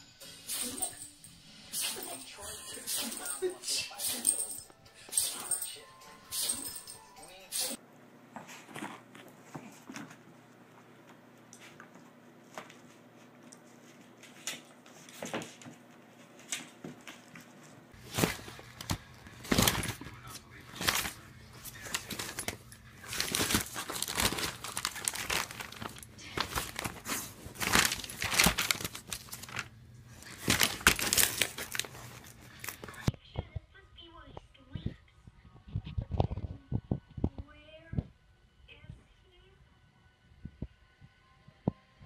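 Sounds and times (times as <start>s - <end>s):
plastic packaging crinkling and tearing: 18.0s - 33.1s.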